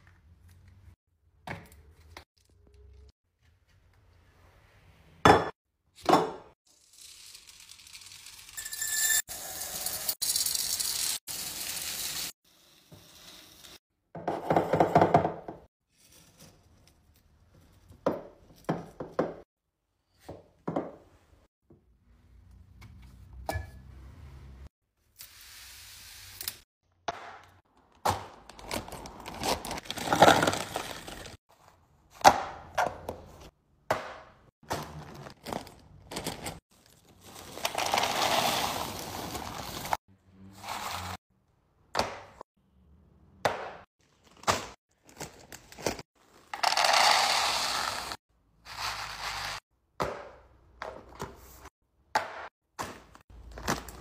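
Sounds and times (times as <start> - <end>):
plastic bags rustling: 28.5 - 31.4, 34.8 - 40.0.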